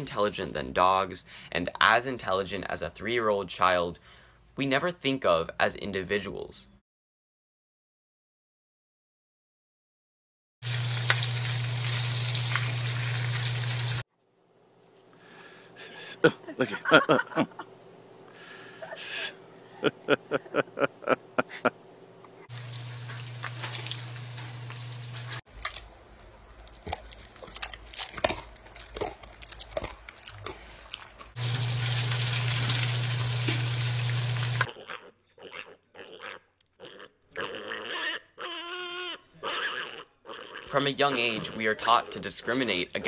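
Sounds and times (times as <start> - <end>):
steady hiss: 15.3 - 21.7
pigs grunting: 34.7 - 42.3.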